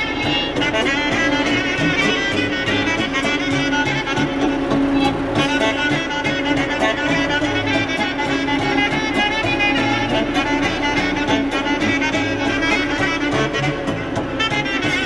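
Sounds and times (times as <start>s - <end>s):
instrumental music with steady beat: 0.0s - 15.0s.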